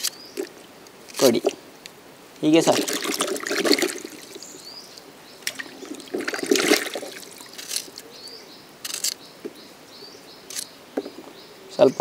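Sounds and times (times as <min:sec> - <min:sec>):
bird chirping: 0:00.0 - 0:00.6, 0:03.8 - 0:12.0
water splashing in a wok: 0:02.6 - 0:04.5, 0:05.5 - 0:07.6.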